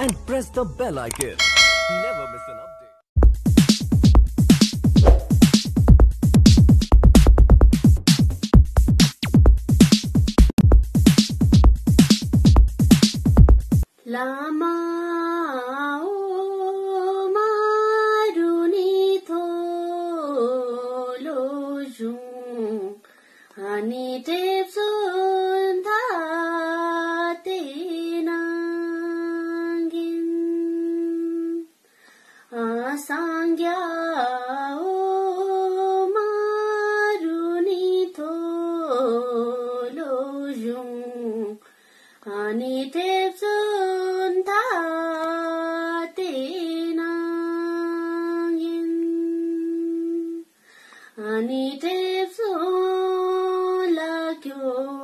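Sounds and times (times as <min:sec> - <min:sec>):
woman singing unaccompanied: 0:13.9 - 0:31.8, 0:32.5 - 0:55.0.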